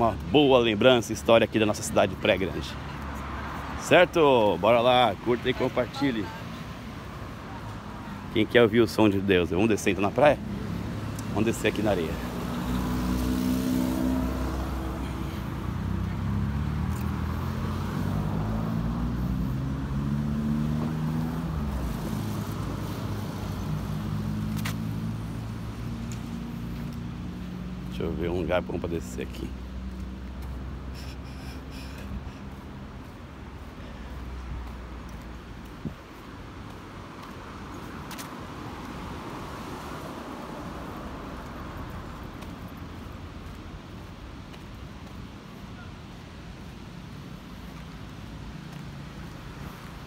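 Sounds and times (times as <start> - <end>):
tyres hissing of passing traffic: 0.0 - 50.0
vehicle engines running: 7.6 - 39.0.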